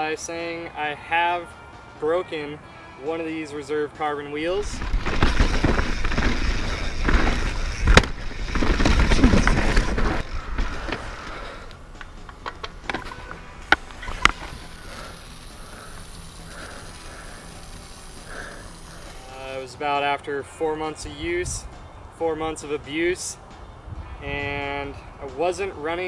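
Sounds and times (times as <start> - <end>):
bike rolling noise: 4.4 - 19.8
bike rattling over roots and rocks: 4.5 - 19.7.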